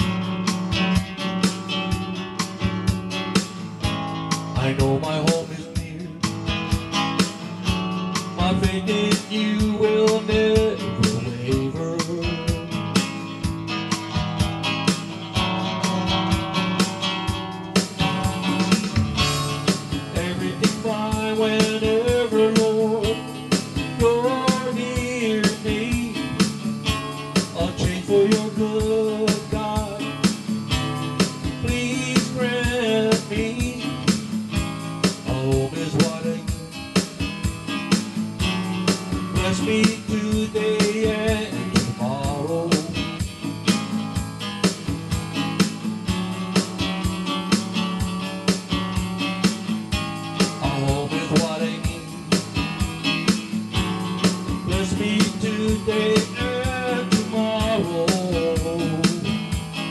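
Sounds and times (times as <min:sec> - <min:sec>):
song with voice and guitar: 0:00.0 - 0:59.9.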